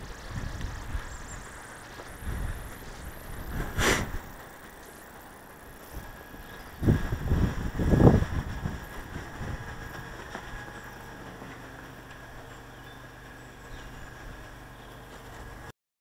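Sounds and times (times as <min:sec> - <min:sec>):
low buffeting rumbles: 0:00.0 - 0:15.7
short hiss: 0:02.8 - 0:04.4.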